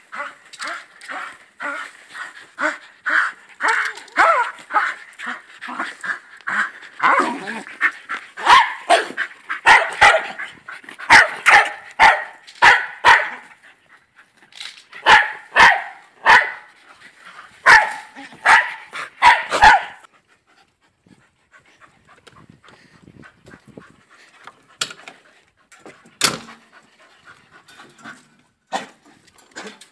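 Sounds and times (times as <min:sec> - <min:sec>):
dog barking: 0:08.4 - 0:10.4, 0:11.1 - 0:13.4, 0:15.0 - 0:16.7, 0:17.6 - 0:20.1.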